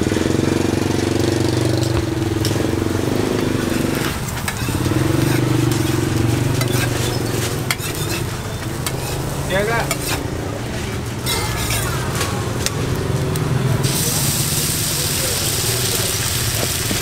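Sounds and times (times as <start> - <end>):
spatula scraping steel griddle: 1.7 - 12.8
metal squeal on griddle: 3.6 - 9.2, 11.2 - 12.1
light sizzle: 11.0 - 17.0.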